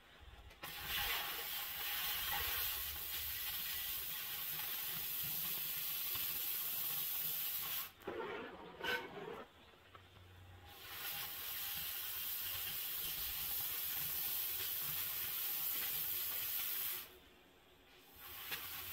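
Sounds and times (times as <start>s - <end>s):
cutting torch hissing: 0.6s - 8.0s, 10.7s - 17.2s, 18.1s - 18.9s.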